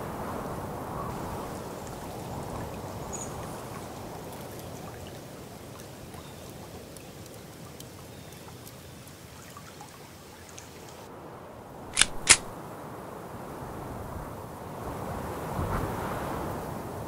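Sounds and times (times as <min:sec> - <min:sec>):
water trickling: 0:01.1 - 0:11.1
faint drips: 0:01.3 - 0:11.1.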